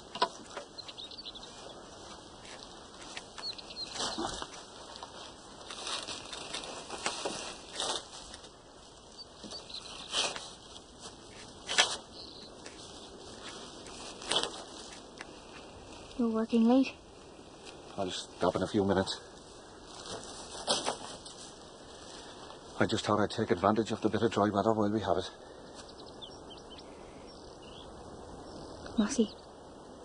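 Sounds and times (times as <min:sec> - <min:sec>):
steady outdoor hiss: 0:00.0 - 0:30.0
fishing net swishing and flapping: 0:02.0 - 0:08.6, 0:10.0 - 0:12.1, 0:12.8 - 0:15.2.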